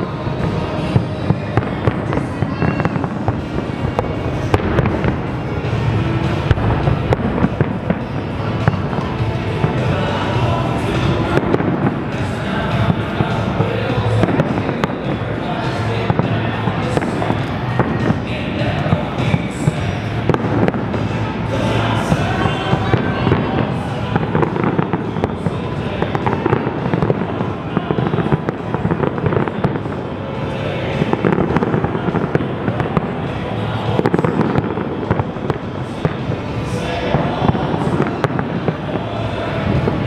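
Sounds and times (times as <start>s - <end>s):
fireworks crackling and popping: 0.0s - 40.0s.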